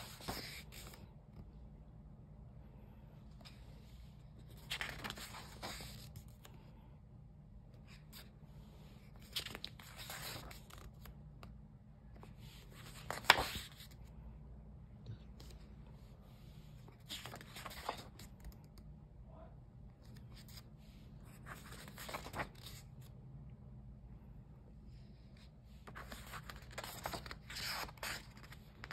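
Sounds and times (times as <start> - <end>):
sketchbook pages turning: 0.0 - 1.5, 3.3 - 6.5, 8.9 - 14.1, 16.8 - 18.8, 20.0 - 23.1, 25.8 - 28.9.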